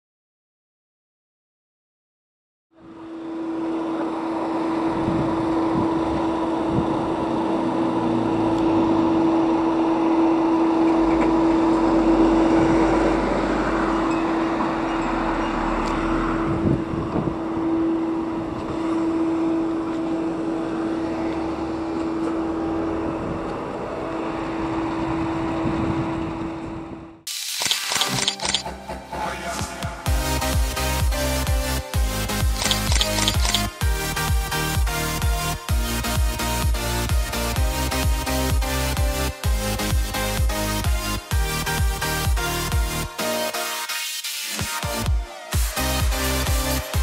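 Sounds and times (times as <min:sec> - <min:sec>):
fire engine driving past: 0:02.8 - 0:26.9.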